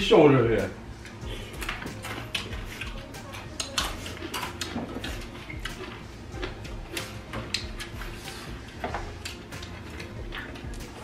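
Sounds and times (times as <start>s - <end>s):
utensils clinking and scraping dishes: 1.0s - 11.0s.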